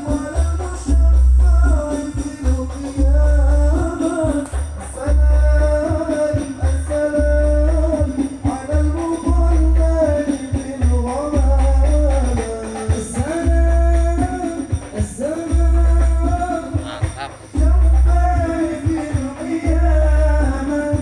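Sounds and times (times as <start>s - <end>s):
heavy sub-bass notes: 0.0s - 10.2s, 15.0s - 19.0s, 19.7s - 20.8s
sung melody over loudspeakers: 0.0s - 21.0s.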